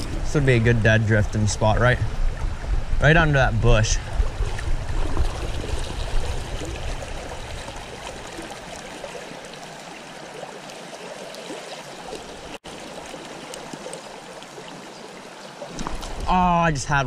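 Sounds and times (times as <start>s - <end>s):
creek water rushing: 3.8s - 17.0s.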